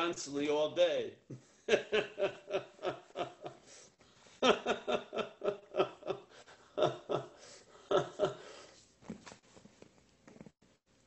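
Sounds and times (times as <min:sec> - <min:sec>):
man laughing: 0:01.3 - 0:03.6, 0:04.4 - 0:08.6.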